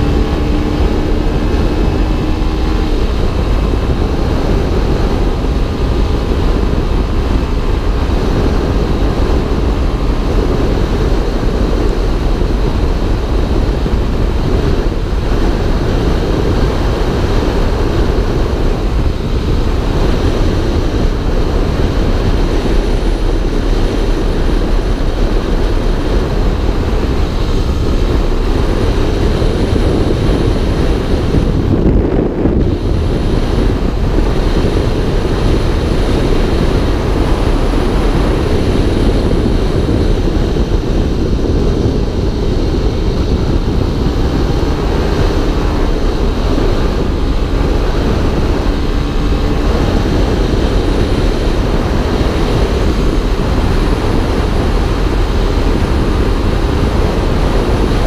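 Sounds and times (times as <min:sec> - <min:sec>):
motorcycle engine running: 0:00.0 - 0:58.0
wind rush on microphone: 0:00.0 - 0:58.0.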